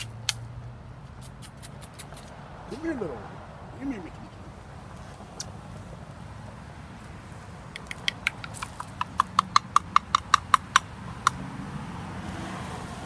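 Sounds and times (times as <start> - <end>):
person making tongue clicks: 1.2 - 2.3, 5.4 - 5.6, 7.7 - 11.4.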